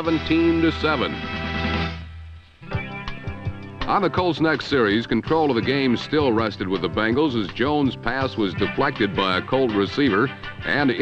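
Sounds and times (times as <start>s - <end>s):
plucked guitar-like music: 2.6s - 11.0s.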